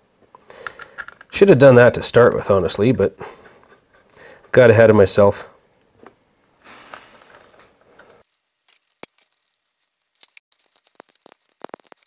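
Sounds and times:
hands rustling metal parts: 6.8s - 12.0s.

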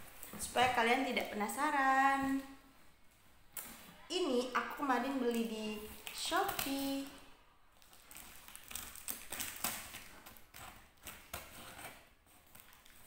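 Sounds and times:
packaging crinkling: 5.3s - 13.0s
scissors snipping packaging: 6.0s - 7.1s, 8.1s - 13.0s.

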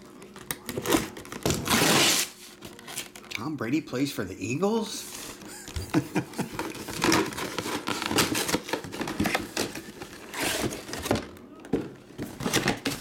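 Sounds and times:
cardboard box being torn: 0.8s - 2.4s.

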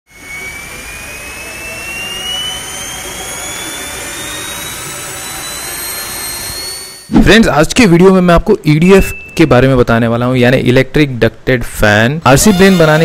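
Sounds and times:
electric ducted fan whining: 0.1s - 8.4s, 12.3s - 13.0s.

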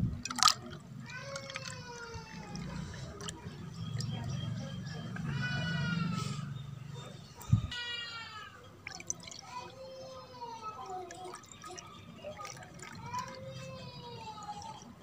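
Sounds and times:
liquid pouring into bowl: 0.2s - 1.9s, 8.8s - 9.8s, 10.8s - 13.6s.

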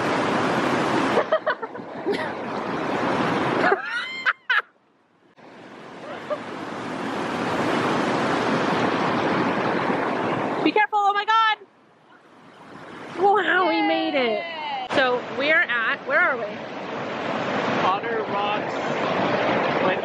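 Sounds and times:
river rushing over rocks: 12.6s - 20.0s.

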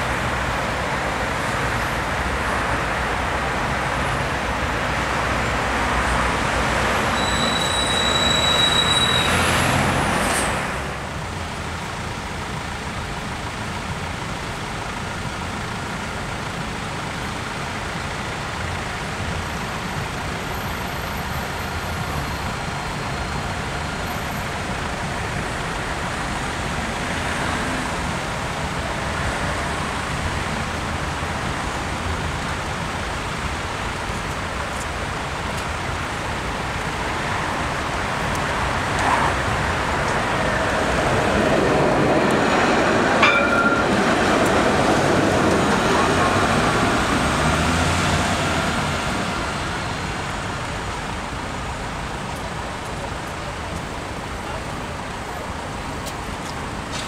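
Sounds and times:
street traffic noise: 0.0s - 57.0s
tram rolling in and stopping: 0.1s - 57.0s.

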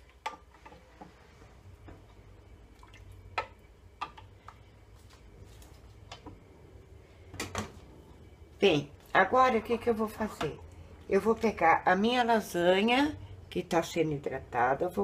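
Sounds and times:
faint low hum: 0.0s - 15.0s.

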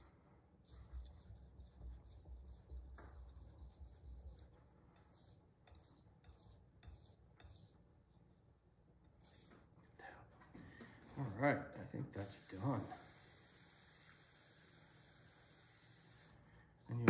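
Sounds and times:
knife scraping on sharpening stone: 5.0s - 7.7s.

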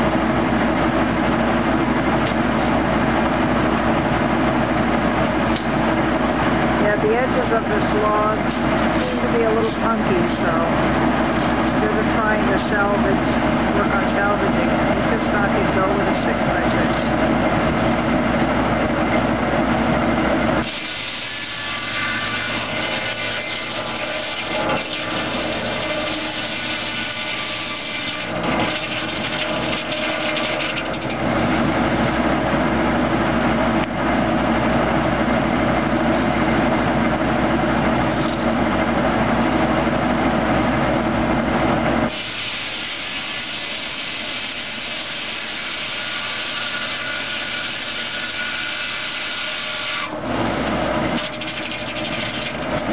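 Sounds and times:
tractor drive humming: 0.0s - 42.7s, 50.0s - 52.9s
circular saw blade ripping wood: 20.6s - 31.6s, 42.1s - 50.2s, 51.0s - 52.9s.

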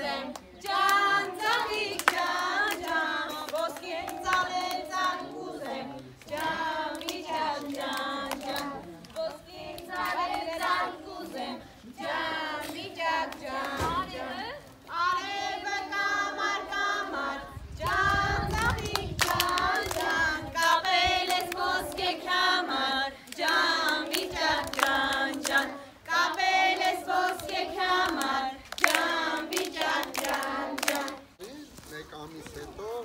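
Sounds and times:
children and women singing: 0.0s - 31.4s
hand-clapping: 0.3s - 10.8s, 18.6s - 20.2s, 26.3s - 31.2s.

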